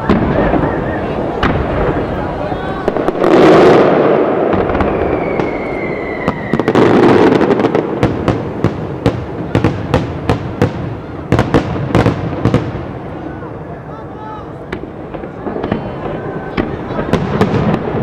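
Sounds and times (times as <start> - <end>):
firework whistle: 0.0 - 7.9
sharp firework bangs: 0.0 - 13.2, 14.7 - 18.0
firework booms: 0.0 - 13.9, 14.5 - 18.0.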